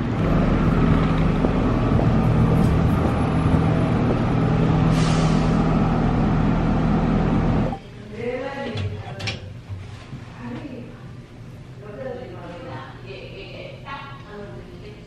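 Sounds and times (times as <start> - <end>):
city street traffic: 0.0 - 7.8
vehicle engine humming: 0.0 - 7.8.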